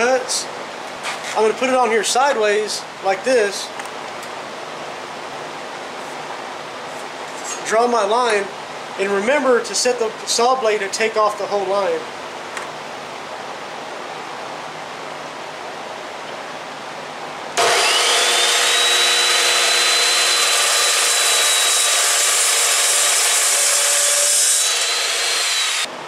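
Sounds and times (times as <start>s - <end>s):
low steady hiss: 0.0s - 17.6s
chop saw cutting metal: 17.6s - 25.9s.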